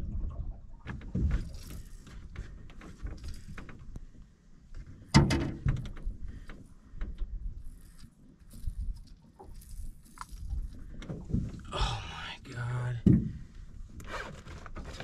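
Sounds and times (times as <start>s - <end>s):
gear rattling on aluminum boat deck: 4.9s - 7.5s.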